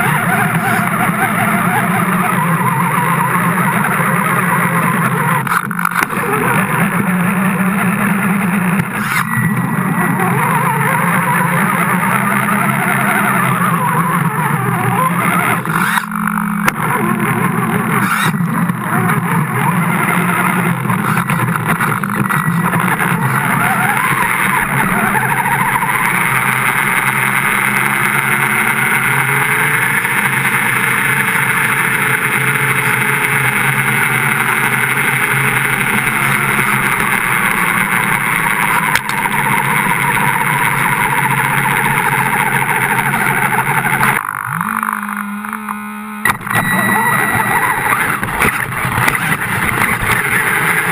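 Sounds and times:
radio-controlled car motor: 0:00.0 - 0:50.9.

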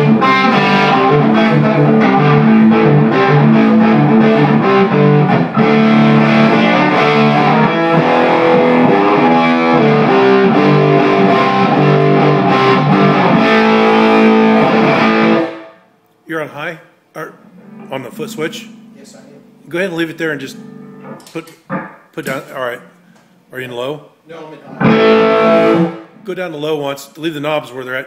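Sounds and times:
overdriven electric guitar: 0:00.0 - 0:15.8, 0:20.4 - 0:22.0, 0:24.7 - 0:26.1.

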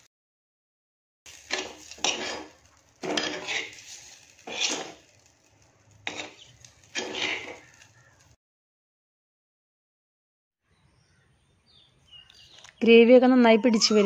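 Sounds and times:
spoon scraping a clay pot: 0:01.3 - 0:05.1, 0:06.0 - 0:07.8.

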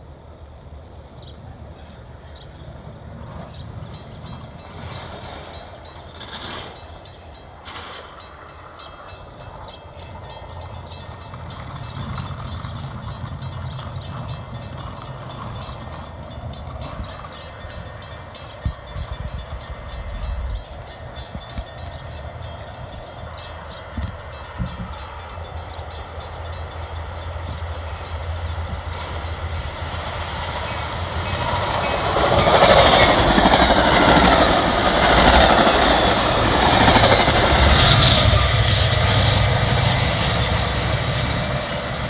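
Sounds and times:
train rumbling: 0:00.0 - 0:42.0.

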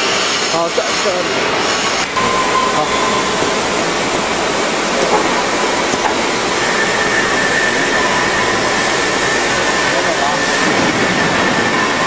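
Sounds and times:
welding machinery noise: 0:00.0 - 0:12.0
faint high whine: 0:02.1 - 0:05.6.

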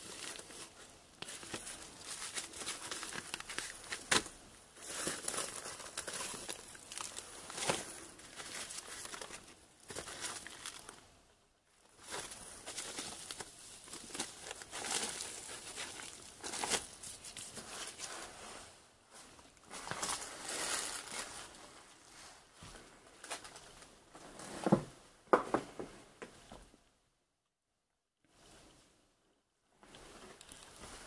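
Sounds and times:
paper rustling and crinkling: 0:00.0 - 0:11.0, 0:11.9 - 0:22.4.

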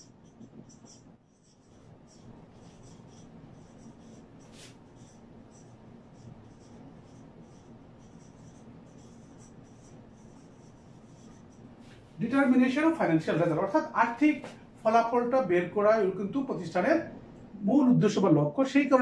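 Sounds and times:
marker squeaking on whiteboard: 0:00.0 - 0:11.7.

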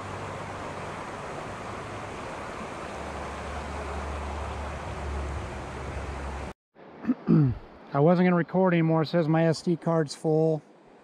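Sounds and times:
river rushing over rocks: 0:00.0 - 0:06.5.

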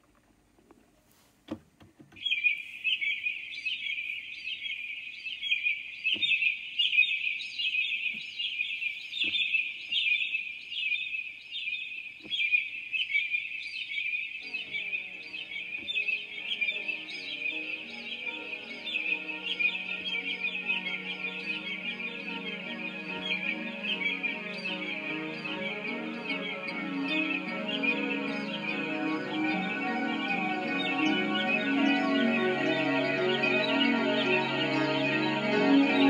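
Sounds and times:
birds chirping: 0:02.1 - 0:36.0
music: 0:14.4 - 0:36.0.

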